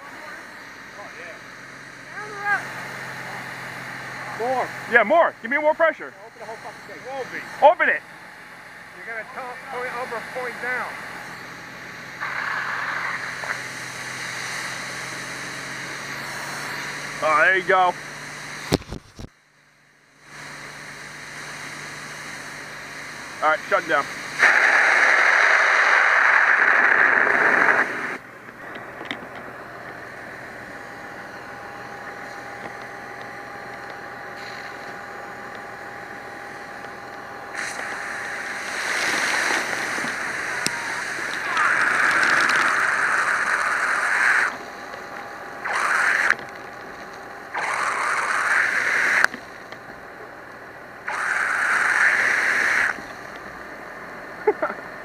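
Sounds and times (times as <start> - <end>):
faint steady hum: 0.0 - 55.0
fire hose nozzle hissing: 12.2 - 16.3, 21.5 - 28.2, 37.5 - 44.8, 45.6 - 49.5, 51.0 - 53.2.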